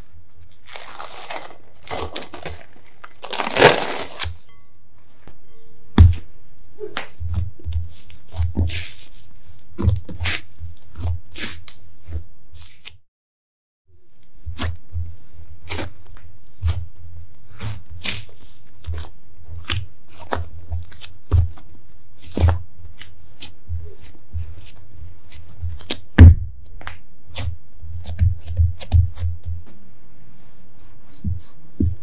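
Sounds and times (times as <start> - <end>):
hands patting bread dough: 14.4 - 29.8, 30.8 - 32.0
dough thump: 25.6 - 29.8.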